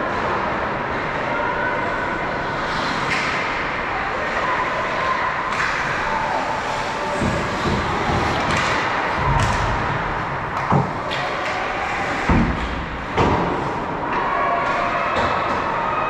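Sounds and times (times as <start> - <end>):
puck and sticks thumping boards: 5.5 - 15.8.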